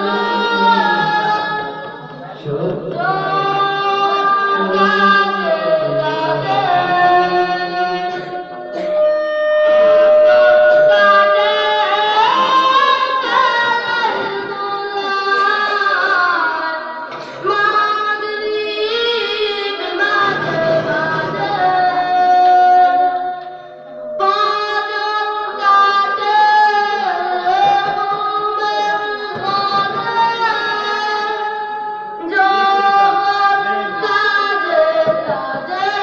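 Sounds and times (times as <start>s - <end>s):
person singing devotional song: 0.0s - 36.0s.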